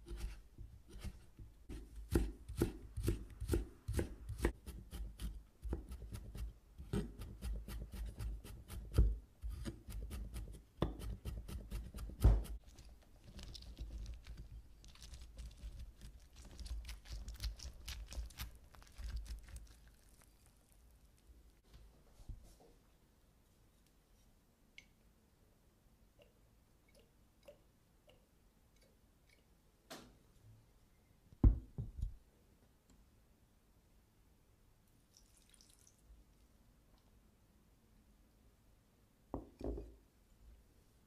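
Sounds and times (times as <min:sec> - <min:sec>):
knife chopping on wooden board: 0:00.9 - 0:12.6.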